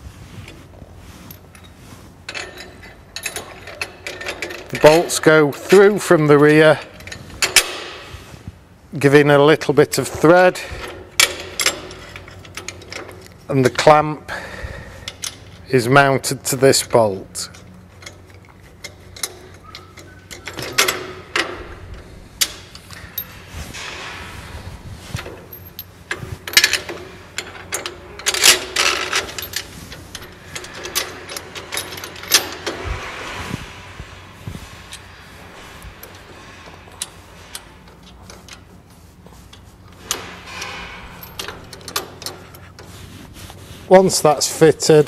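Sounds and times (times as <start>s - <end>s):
metal clamp clicks and clanks: 1.3s - 8.1s, 9.9s - 13.9s, 15.0s - 15.7s, 16.8s - 24.2s, 25.1s - 34.0s, 34.6s - 42.9s.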